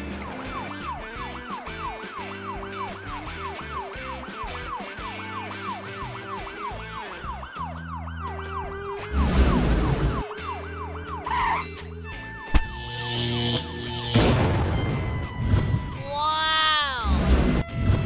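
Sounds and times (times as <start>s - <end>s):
background music: 0.0s - 18.0s
cartoon police siren wailing: 0.2s - 11.7s, 16.1s - 17.2s.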